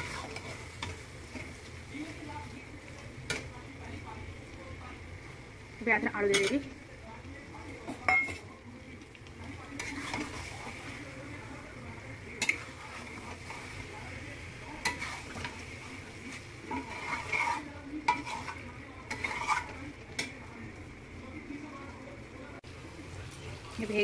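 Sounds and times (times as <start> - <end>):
spatula scraping pan: 0.0 - 4.2, 6.2 - 6.8, 9.4 - 20.5
sauce sizzling in oil: 0.0 - 24.0
spatula clinking on pan: 8.0 - 8.4.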